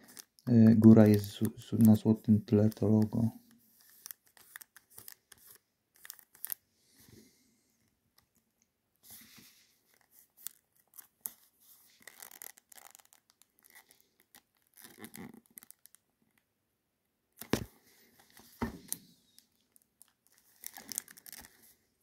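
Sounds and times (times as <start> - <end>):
plastic wrap crinkling: 0.0 - 6.6, 9.9 - 16.1, 17.4 - 21.8.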